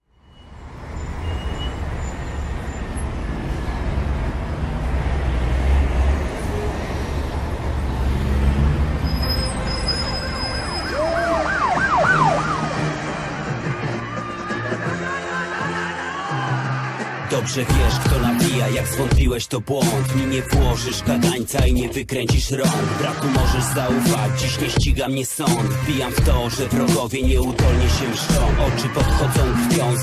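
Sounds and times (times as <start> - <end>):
siren wailing and yelping: 9.9 - 12.9.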